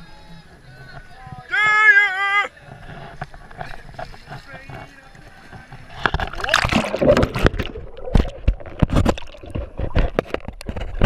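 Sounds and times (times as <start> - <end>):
water splashing and sloshing: 3.0 - 11.0.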